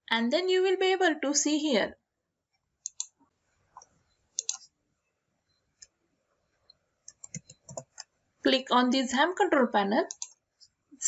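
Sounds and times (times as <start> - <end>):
sharp computer clicks: 2.8 - 3.2, 3.8 - 4.6, 7.1 - 8.1, 10.0 - 10.4.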